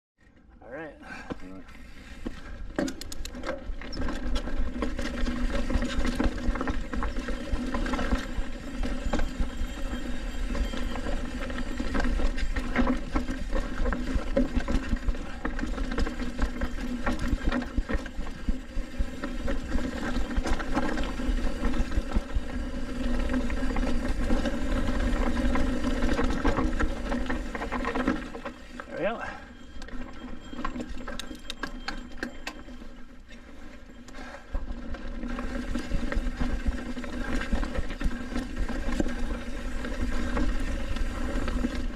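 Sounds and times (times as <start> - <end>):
bike knocks and rattles: 2.3 - 28.7
bike tyres rumbling on dirt: 3.5 - 31.1, 31.7 - 41.9.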